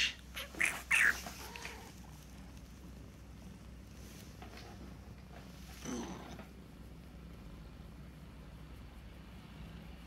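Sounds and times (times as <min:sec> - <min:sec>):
low steady hum: 0:00.0 - 0:10.0
hand stroking cat fur: 0:00.4 - 0:07.5.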